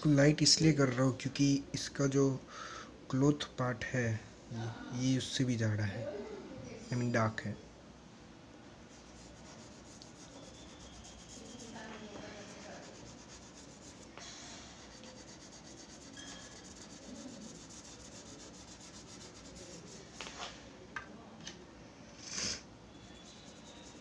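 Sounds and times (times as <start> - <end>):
charcoal scratching on paper: 8.9 - 20.4, 23.0 - 24.0.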